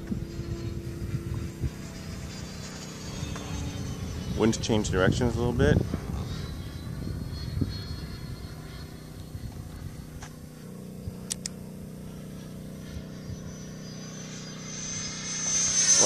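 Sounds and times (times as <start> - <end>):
distant model jet fan whine: 0.0 - 16.0
sharp clicks: 11.3 - 11.6.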